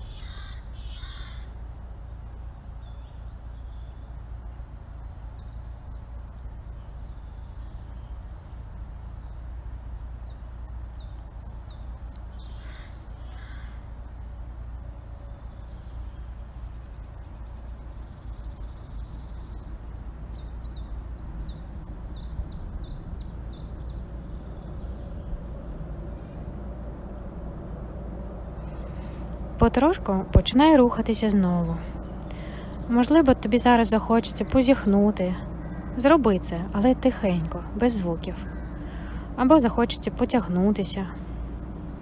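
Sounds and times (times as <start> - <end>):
harsh bird calls: 0.0 - 1.7, 10.2 - 14.1, 28.5 - 42.0
birds chirping: 0.0 - 42.0
steady low rumble: 0.0 - 42.0.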